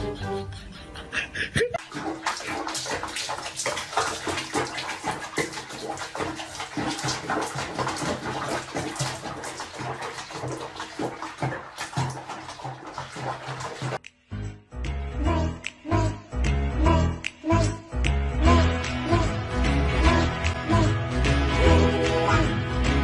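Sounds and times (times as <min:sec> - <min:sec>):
water splashing in a basin: 0:01.8 - 0:14.1.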